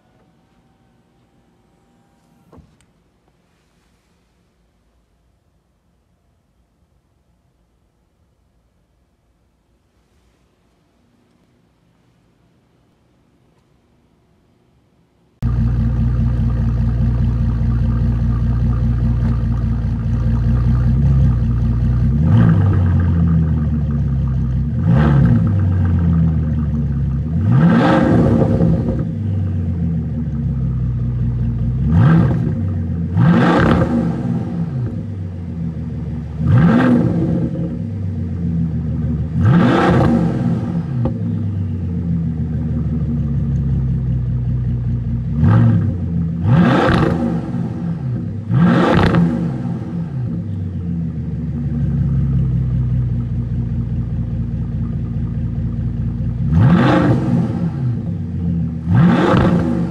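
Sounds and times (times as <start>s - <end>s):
car engine idling and revving: 15.4s - 59.9s.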